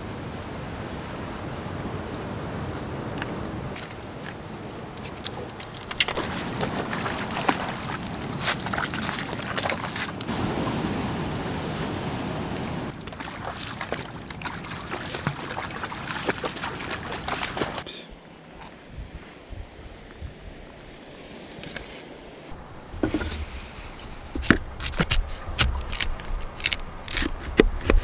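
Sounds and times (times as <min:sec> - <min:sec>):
water sloshing and splashing: 0:03.7 - 0:17.8, 0:22.5 - 0:28.0.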